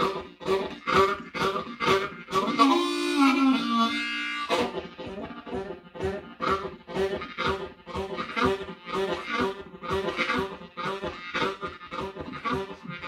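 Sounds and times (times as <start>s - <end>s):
harmonica imitating a train: 0.0s - 13.0s.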